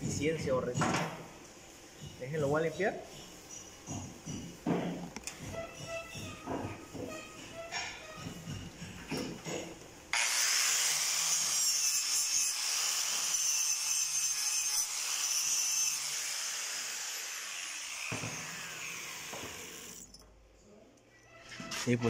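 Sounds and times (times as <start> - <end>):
tool set down knock: 0.8 - 1.2, 3.9 - 9.8.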